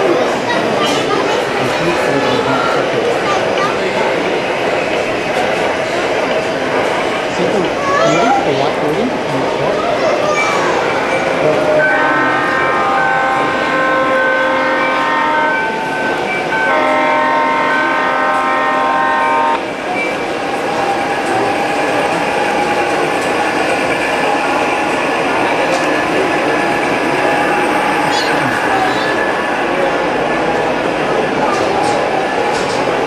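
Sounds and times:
model trains running: 0.0s - 33.0s
model train horn blasts: 11.8s - 15.6s, 16.7s - 19.6s.

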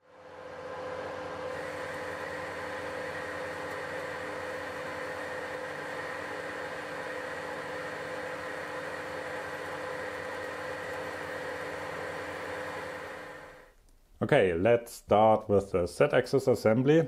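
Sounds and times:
metal lathe humming: 0.2s - 13.7s.

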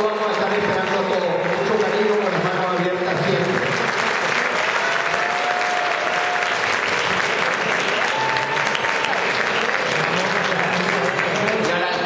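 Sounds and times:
audience applauding: 0.0s - 12.0s
crowd calling out: 4.6s - 7.0s, 7.8s - 9.3s.

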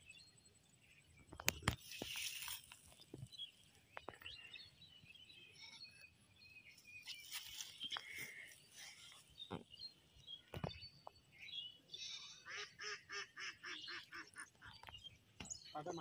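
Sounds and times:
hands rustling over grass: 1.6s - 3.6s, 6.9s - 9.4s.

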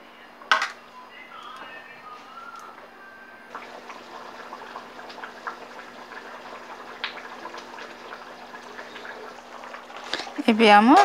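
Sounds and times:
curry boiling with pops: 3.5s - 11.0s.

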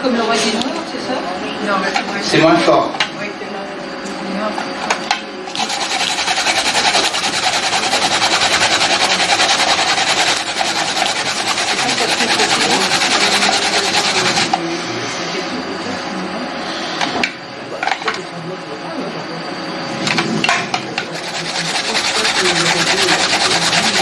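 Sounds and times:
radish grated on metal grater: 5.5s - 14.5s, 21.0s - 24.0s.

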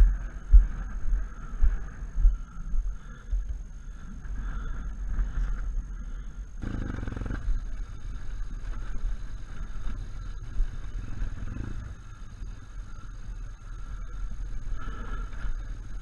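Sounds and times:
wind rumble on microphone: 0.0s - 16.0s
motorcycle engine running: 6.6s - 16.0s.

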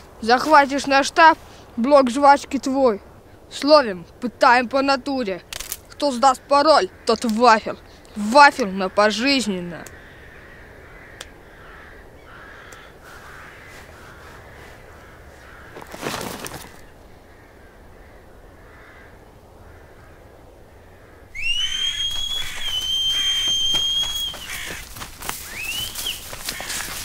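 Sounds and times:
crows cawing: 8.8s - 27.0s
loud high whistle: 21.3s - 24.5s.

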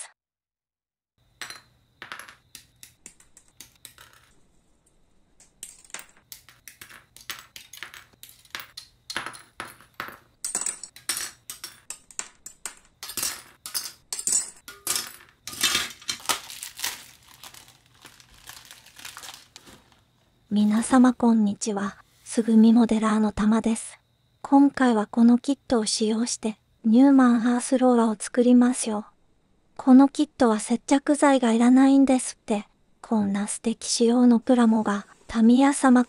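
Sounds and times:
plastic bag crinkling: 15.5s - 20.0s.

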